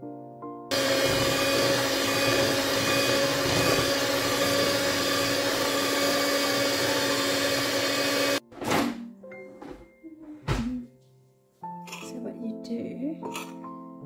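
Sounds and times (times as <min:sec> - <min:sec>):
electric mixer motor humming: 0:00.7 - 0:08.4.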